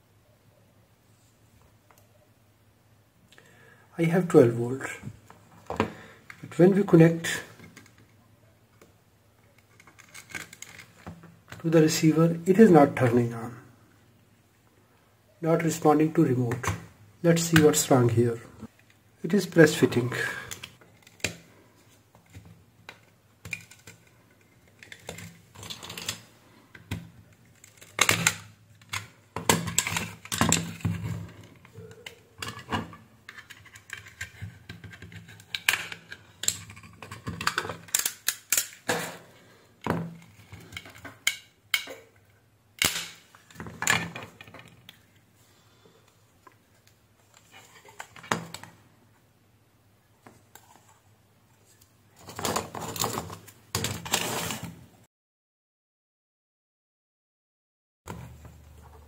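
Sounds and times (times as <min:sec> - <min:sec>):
plastic case clips snapping open: 0:34.9 - 0:39.0.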